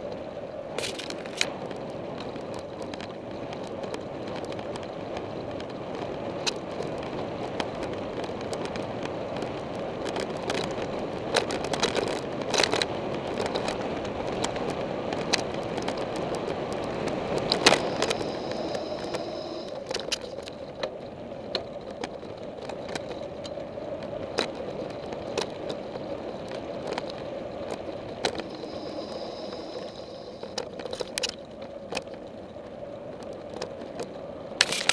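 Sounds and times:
bike clicks and rattles: 0.0 - 34.9
short high-pitched whine: 17.7 - 19.8, 28.5 - 30.5.

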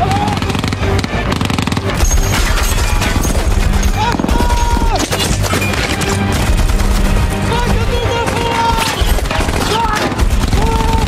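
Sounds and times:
background music: 0.0 - 11.0
machine-gun fire: 0.3 - 11.0.

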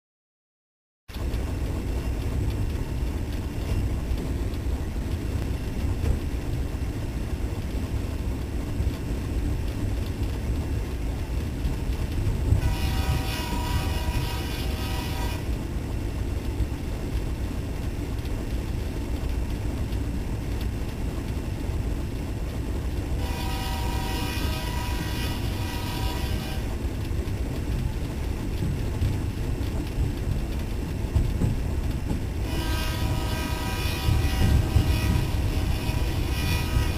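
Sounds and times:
diesel locomotive engine rumbling: 1.1 - 36.9
locomotive air horn blasts: 12.6 - 15.5, 23.2 - 26.8, 32.4 - 36.9.

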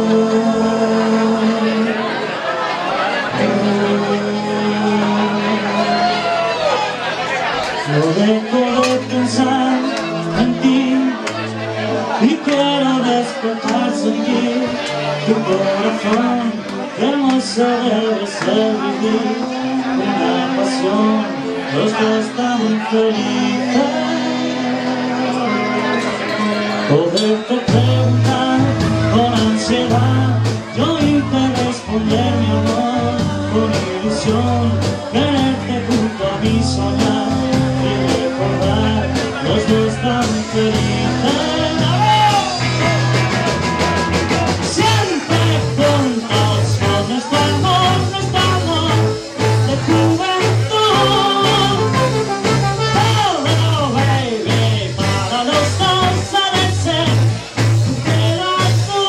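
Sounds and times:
lead singer singing: 0.0 - 6.9, 7.6 - 59.0
live rock band playing: 0.0 - 59.0
trombone: 27.7 - 59.0.

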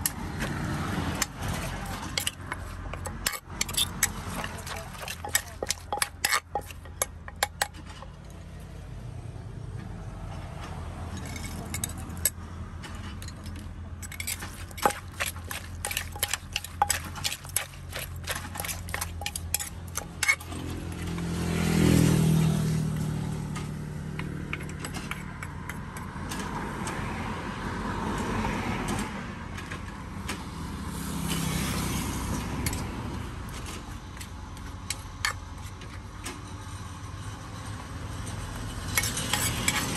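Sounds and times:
vehicle passing: 0.0 - 6.2, 14.3 - 29.5, 30.1 - 34.6
utensils clinking on dishes: 1.2 - 8.1, 13.2 - 21.4, 38.9 - 39.9.

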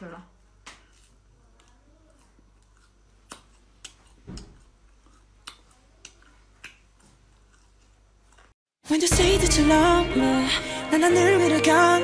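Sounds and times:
chewing beef jerky: 0.9 - 8.6.

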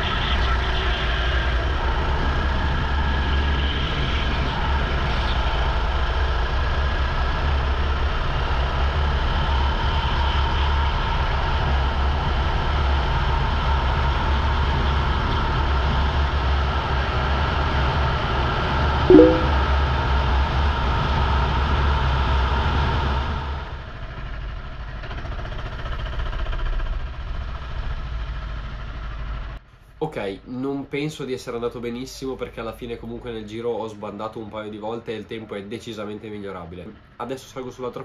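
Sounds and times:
short loud chirp: 19.1 - 19.6.

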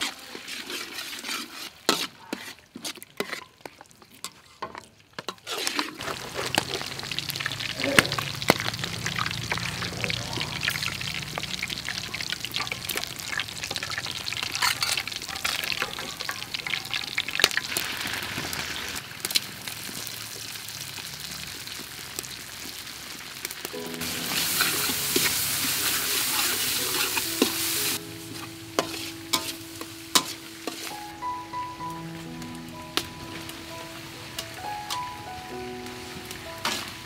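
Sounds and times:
metal spatula scraping pan: 0.0 - 6.8, 12.5 - 16.8, 24.2 - 31.0
oil sizzling in wok: 0.0 - 37.0.

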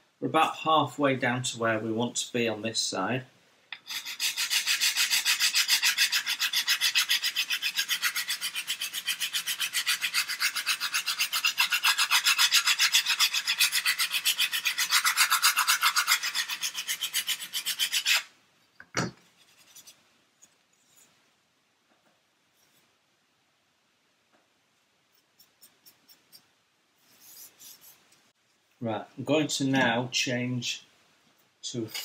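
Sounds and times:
file rasping on wood: 3.8 - 18.3.

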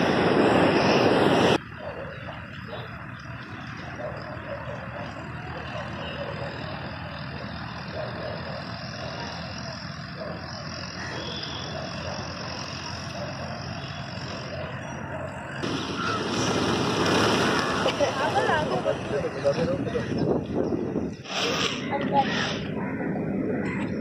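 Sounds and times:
flock of pigeons flying: 10.3 - 20.0.

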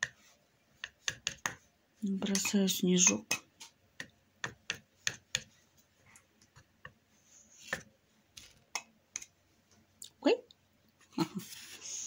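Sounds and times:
palette knife tapping paint: 0.8 - 1.6, 2.2 - 5.5.

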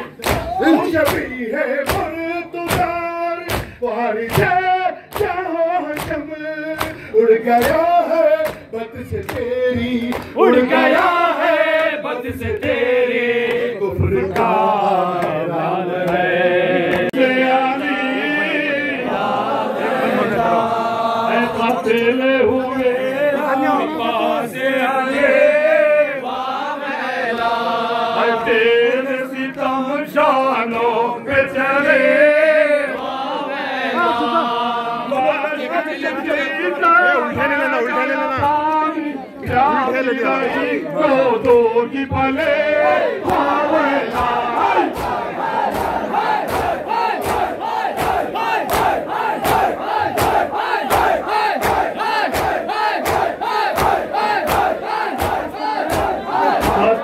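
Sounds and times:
group chanting in unison: 0.0 - 57.0
hands beating on chests: 0.2 - 7.0, 44.1 - 57.0.

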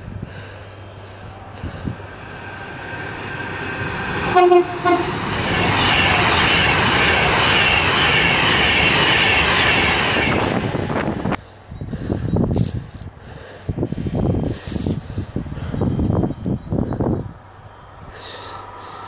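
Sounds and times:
train passing at speed: 0.0 - 12.7, 13.7 - 19.0
train horn blasts: 4.1 - 10.6.

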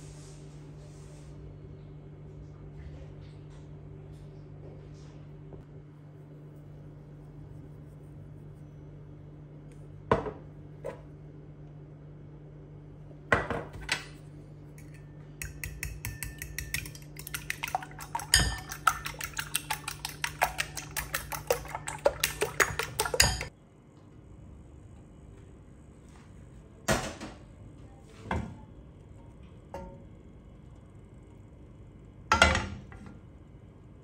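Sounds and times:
fork clinking against bowl: 14.8 - 23.5.

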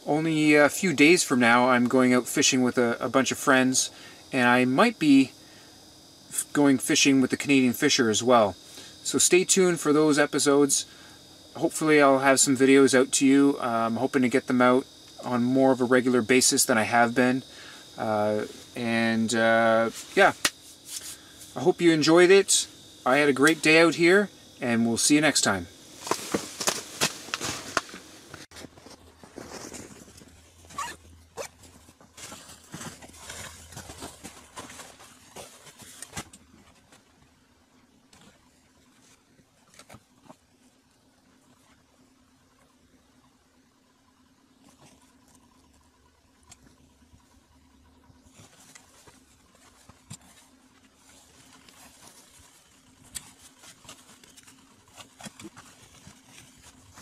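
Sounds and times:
low steady hum: 0.0 - 57.0.

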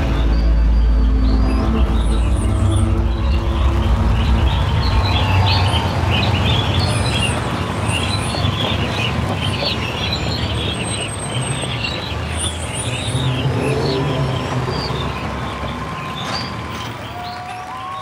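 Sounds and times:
low sustained drone: 0.0 - 8.2, 12.6 - 16.3
birdsong chirping: 0.0 - 17.9.

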